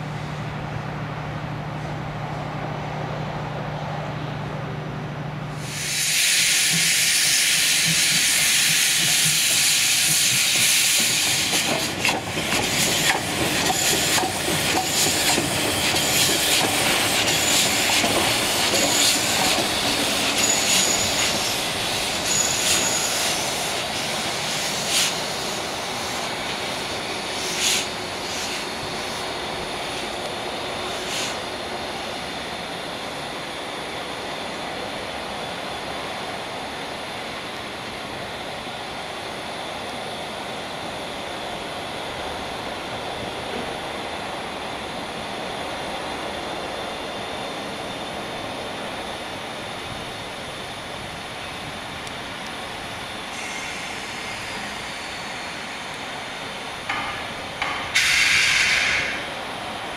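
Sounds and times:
steam hissing from locomotive: 5.5 - 32.4, 49.3 - 59.9
engine clanks and knocks: 56.9 - 58.0.

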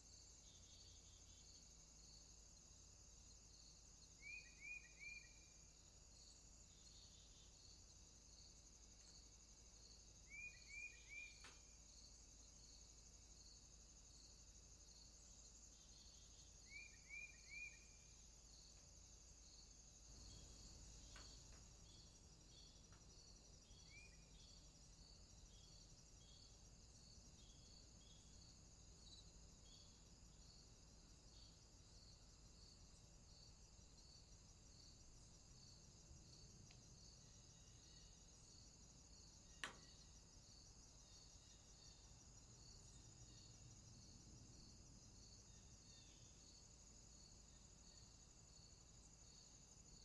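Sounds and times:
crickets chirping: 0.0 - 50.0
sharp click: 39.6 - 39.9.

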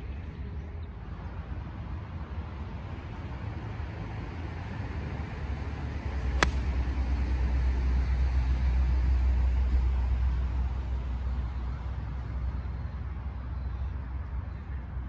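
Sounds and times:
golf ball struck click: 6.4 - 6.8.

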